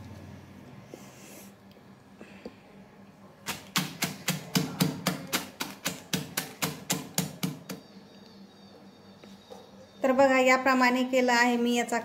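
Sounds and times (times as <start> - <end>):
pestle pounding candy in plastic bag: 3.5 - 7.8.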